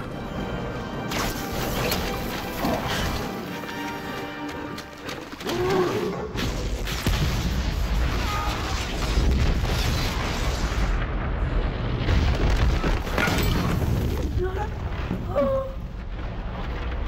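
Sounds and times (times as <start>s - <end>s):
orchestral score: 0.0s - 6.4s
crashing debris: 6.4s - 15.2s.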